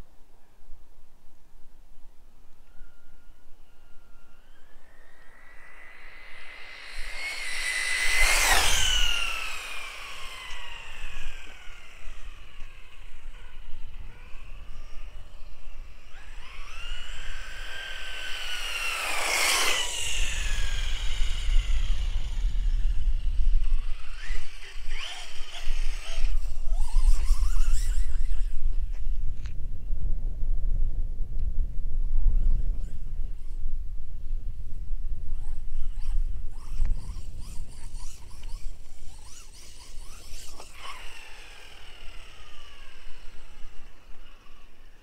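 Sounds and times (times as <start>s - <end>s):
electric toy car motor whine: 2.8s - 29.1s, 35.3s - 45.0s
low rumble: 4.6s - 24.2s.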